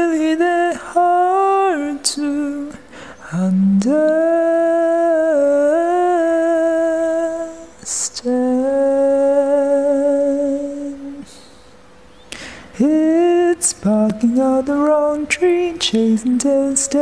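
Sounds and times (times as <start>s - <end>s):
person singing long held notes: 0.0s - 11.7s, 12.6s - 17.0s
singer breathing: 2.8s - 3.4s, 11.2s - 12.8s.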